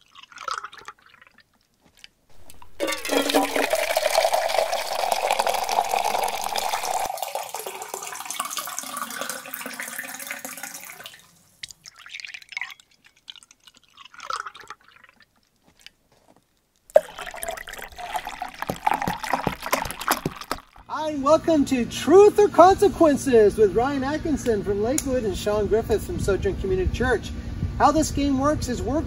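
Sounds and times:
milk pouring into a cup: 2.4 - 15.2, 16.9 - 20.9.

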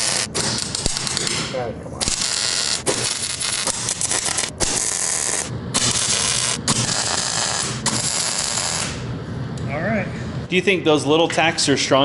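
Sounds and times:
welding arc crackling: 0.0 - 9.1.

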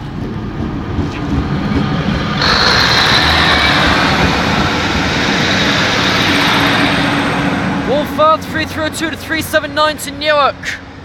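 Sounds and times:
diesel engine drone: 0.0 - 11.0
train wheels on rails: 0.0 - 11.0
high wheel squeal: 2.3 - 9.0.

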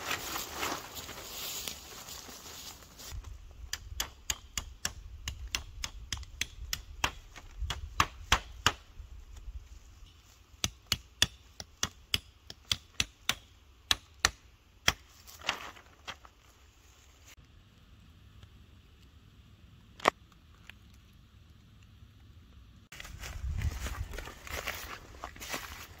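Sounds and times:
hatchet knocking stakes: 3.7 - 8.8, 10.6 - 15.1.

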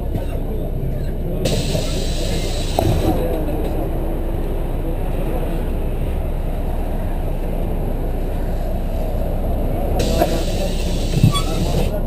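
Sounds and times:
bus engine and road noise: 0.0 - 12.0
hiss: 1.4 - 2.8, 10.0 - 12.0.

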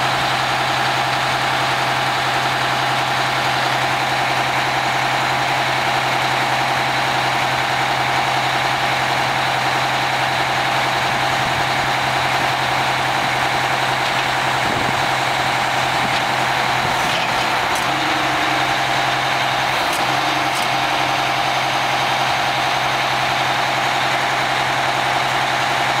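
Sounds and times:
truck diesel engine running: 0.0 - 26.0
hydraulic hook arm pulling: 13.0 - 22.3.

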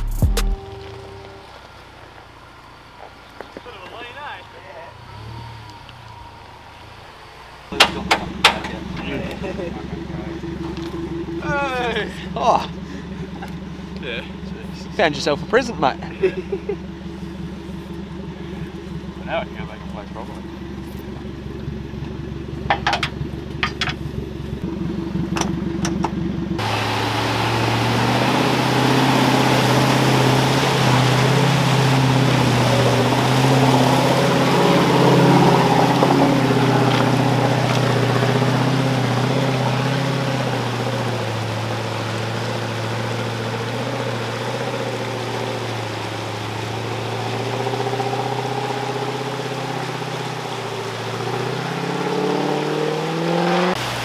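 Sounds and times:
engine idling: 0.0 - 51.5
vehicle engine running: 0.0 - 54.0
water churning around wheels: 0.7 - 54.0
metallic clicks and knocks: 22.6 - 24.1.

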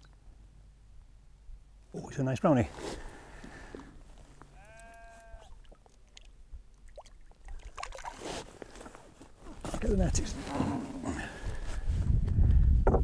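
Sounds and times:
sheep bleating: 4.5 - 5.6.

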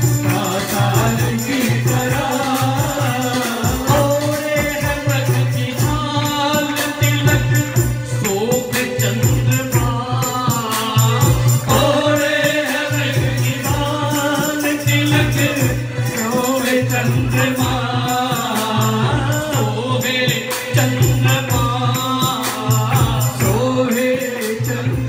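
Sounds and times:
electronic keyboard: 0.0 - 25.0
group singing: 0.0 - 25.0
man singing lead: 0.0 - 25.0
percussion beat: 0.0 - 25.0.

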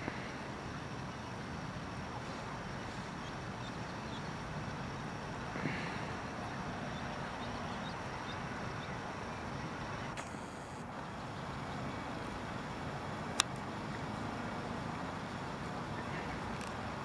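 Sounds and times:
steady background hum: 0.0 - 17.0
ducklings peeping: 2.2 - 9.0.

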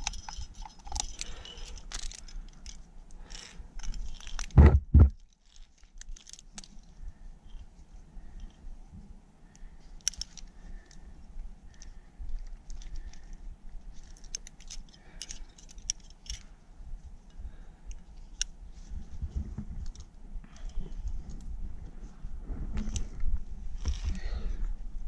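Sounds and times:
metal climbing gear clinking: 0.0 - 4.6, 5.2 - 8.6, 10.0 - 11.1, 11.7 - 16.6, 19.8 - 21.5, 23.8 - 24.6.

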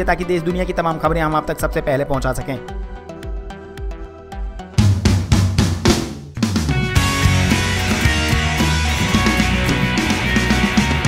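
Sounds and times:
loud drum kit: 4.8 - 11.0
held synth notes: 6.8 - 11.0.

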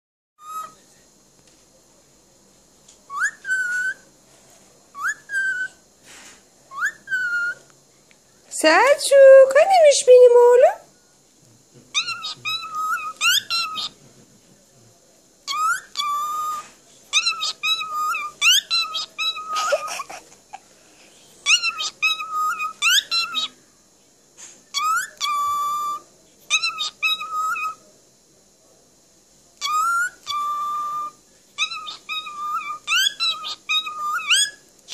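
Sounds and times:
cockatiel whistling: 0.4 - 0.8, 3.1 - 4.0, 5.0 - 5.8, 6.7 - 7.6, 12.0 - 13.9, 15.5 - 19.7, 21.4 - 23.6, 24.7 - 27.8, 29.6 - 34.6.

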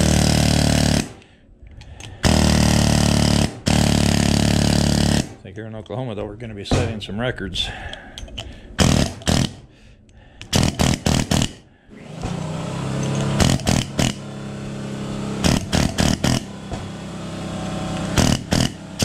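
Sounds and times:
air hammer rattling: 0.0 - 5.4, 7.8 - 9.6, 10.4 - 11.6, 12.2 - 14.3, 15.4 - 16.9, 17.9 - 19.0
steady motor drone: 0.0 - 5.4, 10.5 - 19.0.

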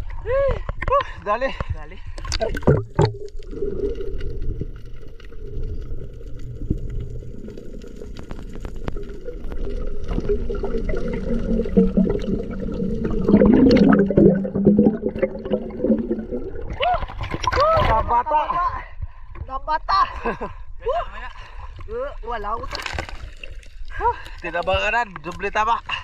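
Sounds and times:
water bubbling and gurgling: 2.0 - 18.3.

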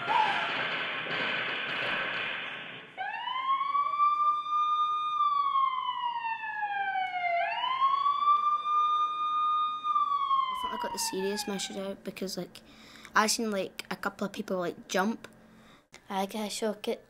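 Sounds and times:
emergency siren wailing: 0.0 - 0.9, 3.0 - 12.0.

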